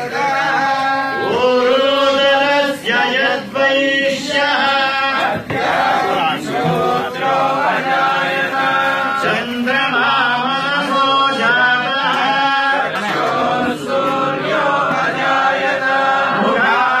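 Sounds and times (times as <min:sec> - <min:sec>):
men chanting a hymn: 0:00.0 - 0:17.0.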